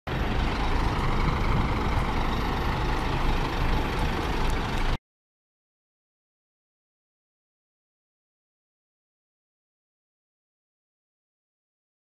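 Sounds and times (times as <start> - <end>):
diesel engine idling: 0.1 - 5.0.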